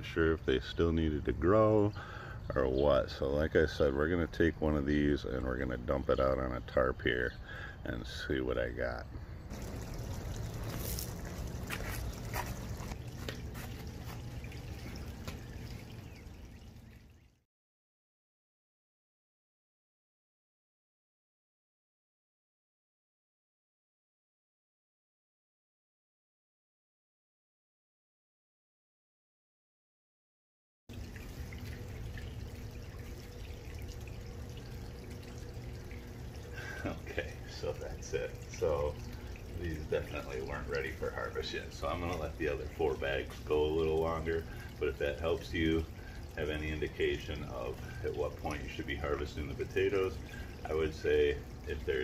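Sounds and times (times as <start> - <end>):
low steady rumble: 0.0 - 17.3, 30.9 - 52.0
faint hum: 1.9 - 17.3, 30.9 - 52.0
hands sifting potting soil: 9.6 - 14.4.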